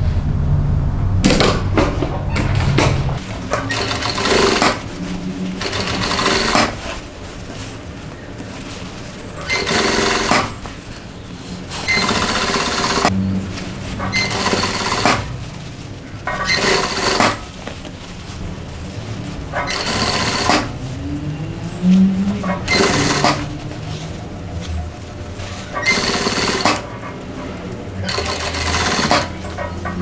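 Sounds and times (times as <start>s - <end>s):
sewing machine stitching: 3.4s - 4.9s, 5.5s - 7.0s, 9.4s - 10.6s, 11.8s - 13.1s, 14.0s - 15.4s, 16.3s - 17.5s, 19.5s - 20.8s, 22.4s - 23.5s, 25.6s - 27.1s, 28.0s - 30.0s.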